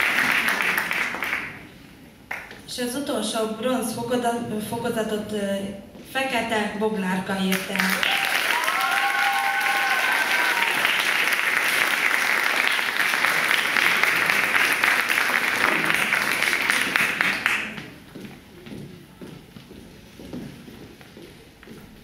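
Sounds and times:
audience applauding: 0:00.0 - 0:01.7, 0:07.5 - 0:17.8.

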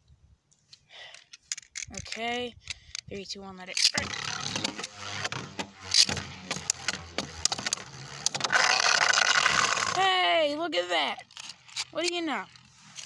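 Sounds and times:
spinning top scraping whir: 0:03.9 - 0:13.0.

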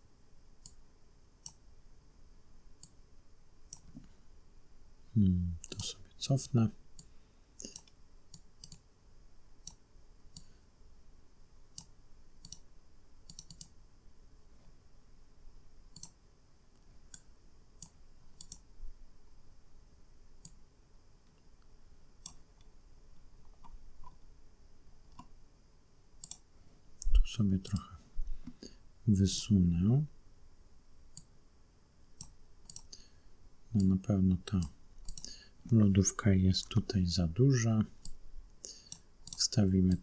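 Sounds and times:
computer mouse buttons clicking: 0:07.0 - 0:08.8, 0:11.8 - 0:13.8, 0:15.9 - 0:16.2, 0:17.1 - 0:18.7, 0:26.2 - 0:26.4, 0:32.2 - 0:33.0, 0:34.6 - 0:35.4.

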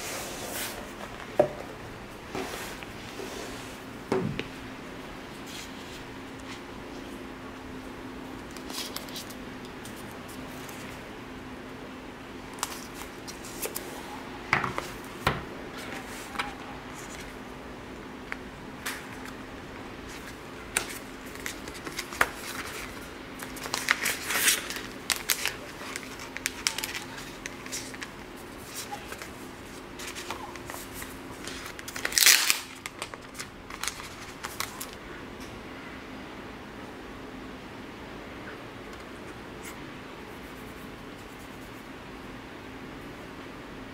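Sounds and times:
faint steady hum: 0:00.0 - 0:43.9
plastic film crinkling: 0:08.5 - 0:10.9, 0:20.2 - 0:35.0
cardboard packaging clicks: 0:31.6 - 0:35.0.

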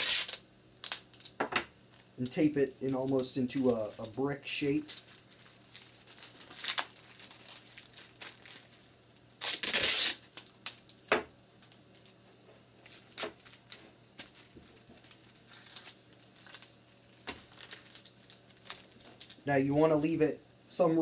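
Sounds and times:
tape ripping off roll: 0:00.0 - 0:01.4, 0:09.4 - 0:10.8
plastic bag crinkling: 0:00.0 - 0:11.0, 0:12.8 - 0:20.1.

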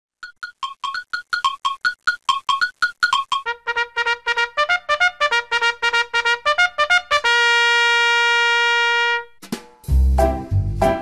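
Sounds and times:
intro music with staccato notes: 0:09.4 - 0:11.0.

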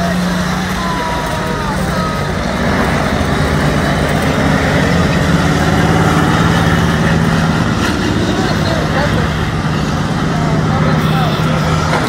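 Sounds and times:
race car engines droning: 0:00.0 - 0:12.0.

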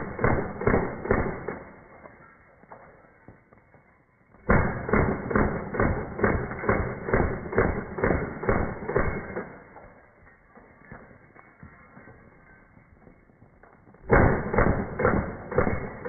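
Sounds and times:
airsoft pistol shots: 0:00.0 - 0:01.8, 0:04.4 - 0:09.6, 0:14.0 - 0:16.0.

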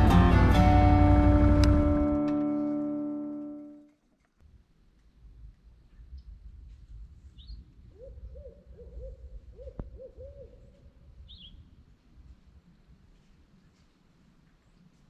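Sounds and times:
low rumble: 0:00.0 - 0:02.3
owl hooting: 0:07.9 - 0:11.5.

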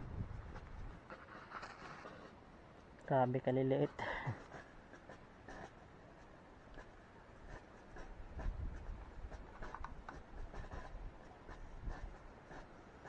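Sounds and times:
fingers rubbing seeds over soil: 0:00.4 - 0:02.4, 0:03.4 - 0:13.0
small ticks: 0:09.3 - 0:10.8.

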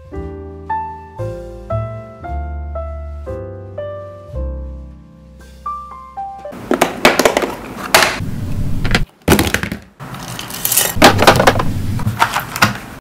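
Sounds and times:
hard plastic items clattering: 0:06.6 - 0:08.2, 0:08.9 - 0:13.0.

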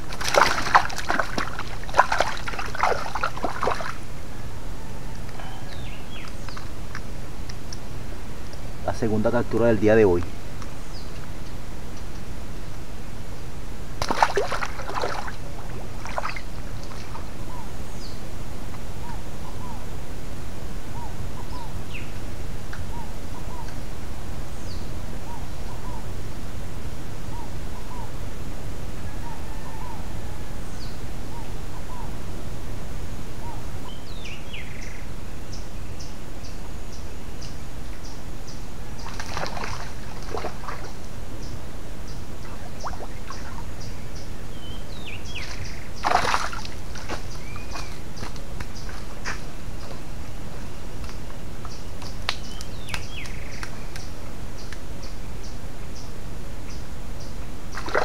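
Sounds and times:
creek water splashing: 0:00.0 - 0:04.2, 0:13.9 - 0:17.5, 0:38.9 - 0:41.2, 0:42.3 - 0:44.0, 0:44.6 - 0:50.2, 0:57.7 - 0:58.0
higher falling bird calls: 0:00.0 - 0:07.2, 0:33.2 - 0:56.1.

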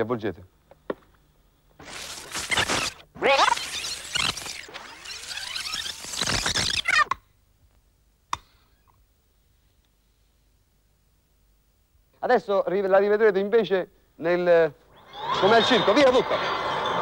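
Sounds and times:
film rewinding screeching chatter: 0:01.8 - 0:07.2.

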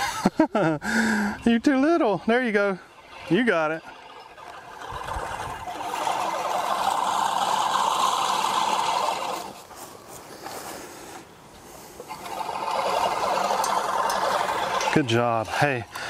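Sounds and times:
reel mower blades whirring: 0:00.0 - 0:16.0.

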